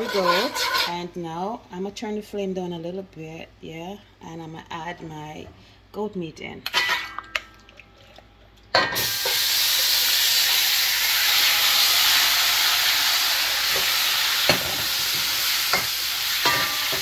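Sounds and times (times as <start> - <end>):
meat sizzling in hot oil: 9.0 - 17.0.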